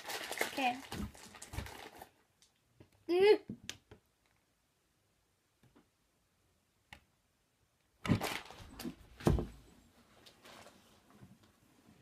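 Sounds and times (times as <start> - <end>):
rustling and shuffling: 8.1 - 12.0.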